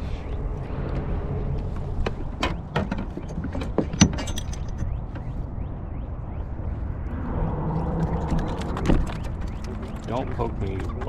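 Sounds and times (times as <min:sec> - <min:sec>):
sharp irregular clicks and knocks: 0:02.0 - 0:05.4.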